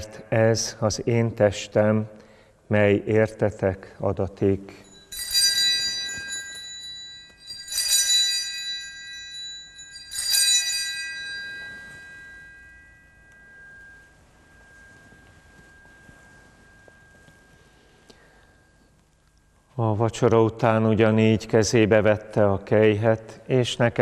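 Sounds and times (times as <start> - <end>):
altar bells ringing: 4.4 - 19.6.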